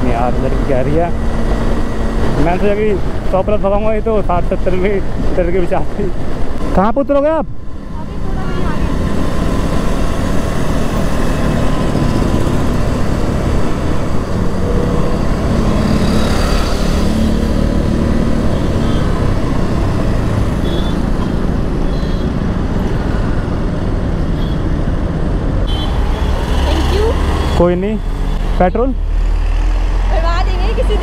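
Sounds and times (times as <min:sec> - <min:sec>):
surrounding traffic: 0:00.0 - 0:31.0
motorcycle engine: 0:08.6 - 0:23.8.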